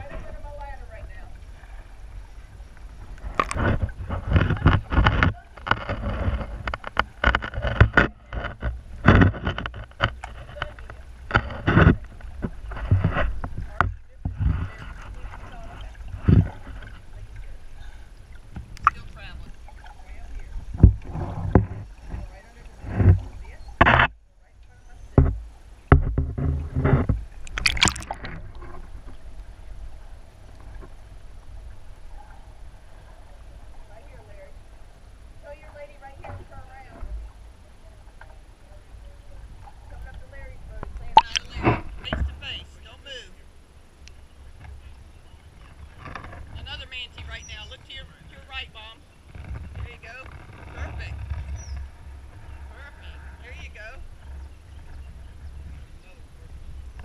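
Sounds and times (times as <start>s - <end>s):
underwater bubbling and splashing: 0.0s - 24.2s, 25.2s - 35.6s, 36.2s - 42.5s
low underwater rumble: 0.0s - 57.0s
sharp underwater clicks: 2.7s - 15.1s, 18.2s - 20.0s, 25.9s - 29.2s, 40.8s - 42.2s.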